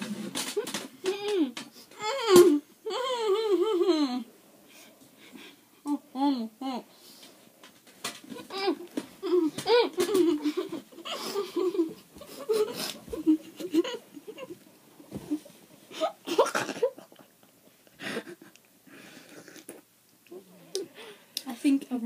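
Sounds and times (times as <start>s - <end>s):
girls laughing: 8.3s - 14.6s, 15.2s - 17.3s.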